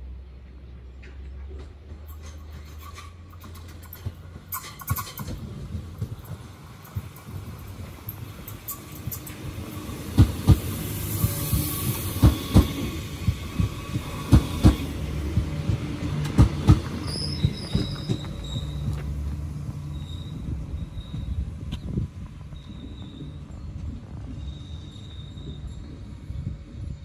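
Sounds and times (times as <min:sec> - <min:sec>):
train rumble: 0:00.0 - 0:27.0
train wheels clacking over rail joints: 0:00.9 - 0:19.9
faint high wheel squeal: 0:17.0 - 0:19.0, 0:19.8 - 0:27.0.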